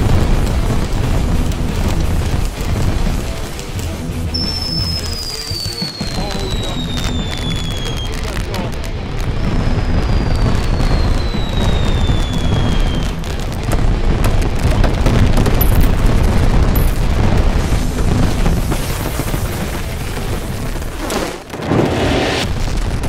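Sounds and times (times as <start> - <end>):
fireworks crackling and booming: 0.0 - 23.0
high falling whistle: 4.4 - 8.1, 9.4 - 13.1.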